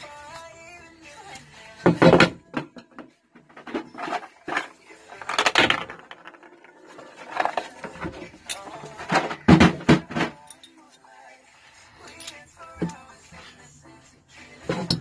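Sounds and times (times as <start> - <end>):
faint music: 0.0 - 15.0
metal parts set down: 2.0 - 10.8
plastic case knocks and rattles: 9.1 - 10.3.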